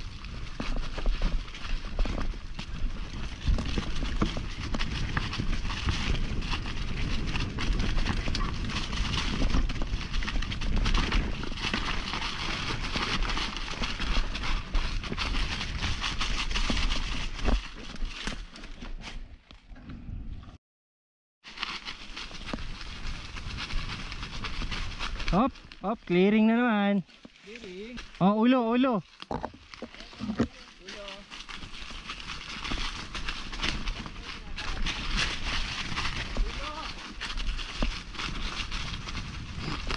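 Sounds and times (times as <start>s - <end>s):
mountain bike rattling over stones: 0.0s - 19.0s, 21.5s - 39.9s.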